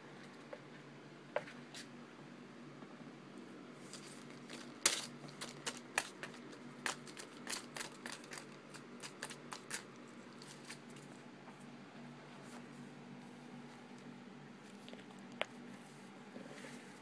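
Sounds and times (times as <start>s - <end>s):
kitten claws scratching lampshade: 3.9s - 11.1s.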